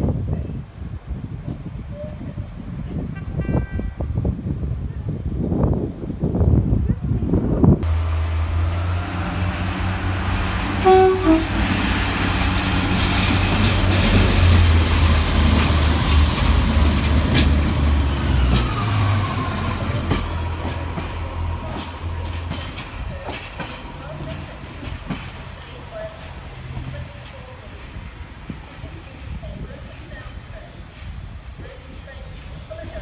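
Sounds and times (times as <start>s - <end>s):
train diesel engine drone: 5.8s - 33.0s
wheels clicking over rail joints: 9.3s - 31.0s
two-note train horn: 10.8s - 11.8s.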